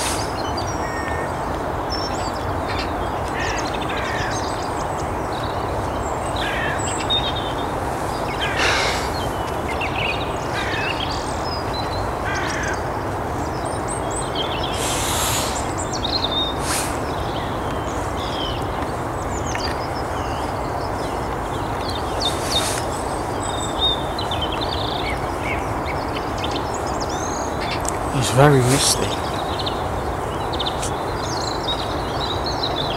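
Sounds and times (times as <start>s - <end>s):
small birds chirping: 0.0s - 32.9s
crow cawing: 0.8s - 1.4s, 3.4s - 4.4s, 6.4s - 6.9s, 8.3s - 9.4s, 10.4s - 11.2s, 12.2s - 12.8s.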